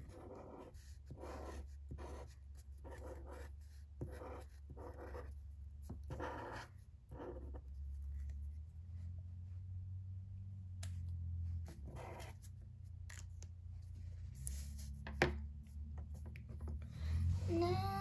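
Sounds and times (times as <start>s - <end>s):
marker strokes on paper: 0.0s - 8.6s, 11.6s - 16.8s.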